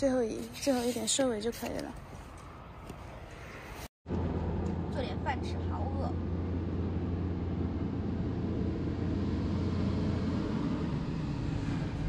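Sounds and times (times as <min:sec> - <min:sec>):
rush of background noise: 0:03.1 - 0:12.0
steady low hum: 0:04.1 - 0:12.0.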